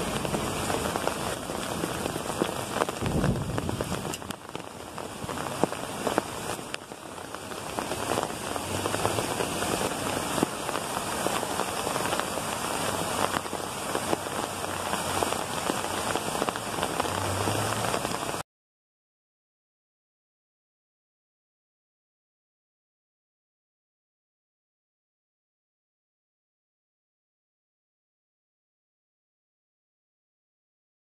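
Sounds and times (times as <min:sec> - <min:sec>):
hailstones ticking: 0:00.0 - 0:18.4
heavy rain hiss: 0:00.0 - 0:18.4.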